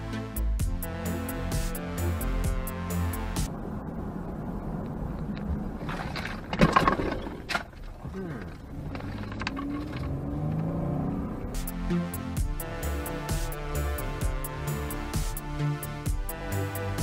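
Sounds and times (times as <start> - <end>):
car interior road noise: 3.5 - 11.8.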